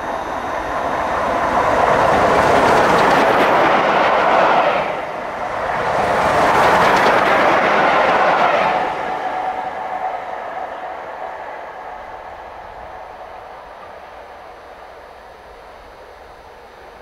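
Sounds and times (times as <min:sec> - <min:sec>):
train wheels rushing on rails: 0:00.0 - 0:17.0
clickety-clack of wheels: 0:01.6 - 0:04.9, 0:05.6 - 0:08.9.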